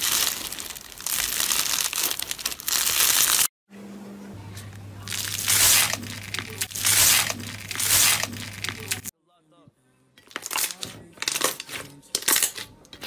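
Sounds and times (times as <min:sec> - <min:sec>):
bead slime crunching: 0:00.0 - 0:03.5, 0:05.1 - 0:09.1
low steady hum: 0:03.7 - 0:09.1.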